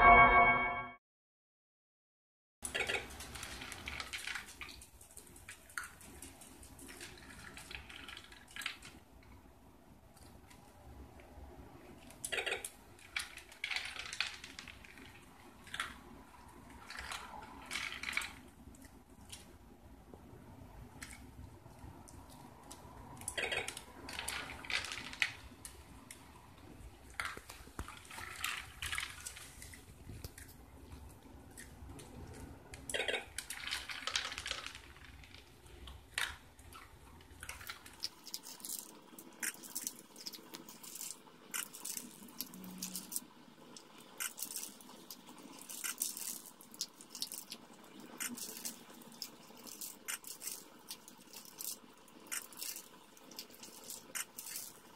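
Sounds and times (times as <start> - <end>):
dog crunching kibble: 37.4 - 54.9.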